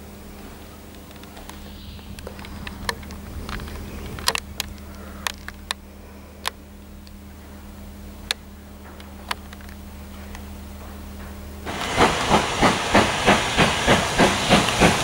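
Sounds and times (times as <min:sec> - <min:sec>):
steady low hum: 0:00.0 - 0:15.0
sharp clicks: 0:00.9 - 0:05.8.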